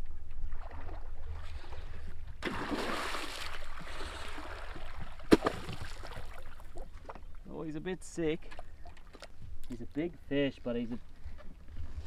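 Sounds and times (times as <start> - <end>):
water sloshing: 0.3 - 7.5
fish thrashing and splashing: 2.4 - 6.8.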